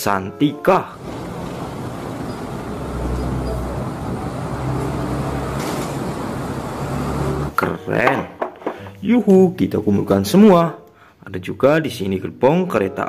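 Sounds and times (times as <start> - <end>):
bus diesel engine running: 1.0 - 7.6.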